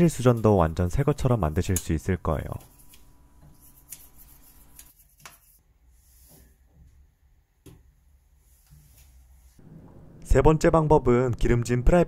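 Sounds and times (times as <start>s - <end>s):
low steady hum: 9.4s - 11.8s.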